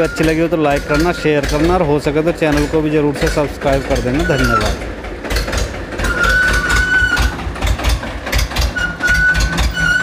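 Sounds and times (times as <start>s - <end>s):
diesel tractor engine running: 0.0s - 10.0s
thin high squeal: 6.0s - 7.3s, 8.8s - 10.0s.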